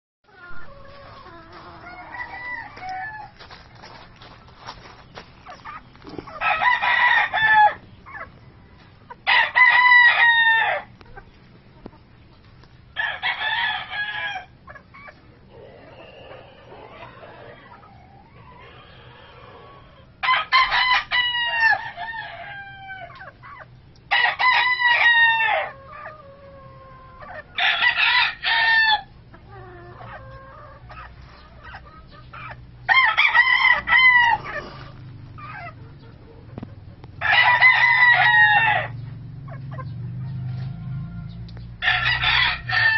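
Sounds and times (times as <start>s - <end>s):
rooster crowing: 0.3s - 3.5s, 6.3s - 7.8s, 8.6s - 10.9s, 24.1s - 29.1s, 32.9s - 34.9s, 37.2s - 38.9s, 40.2s - 42.9s.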